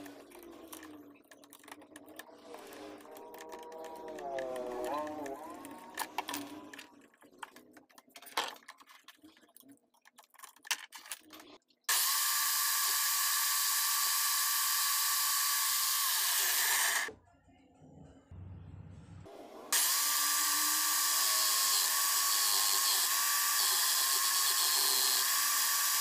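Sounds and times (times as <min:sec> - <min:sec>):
electric drill whirring: 0:11.9 - 0:17.1, 0:19.7 - 0:26.0.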